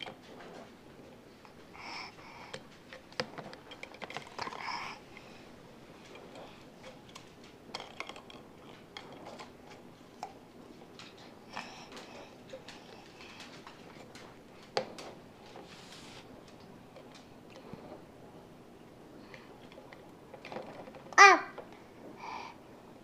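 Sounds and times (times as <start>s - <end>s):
toddler vocal sounds: 21.2s - 21.6s.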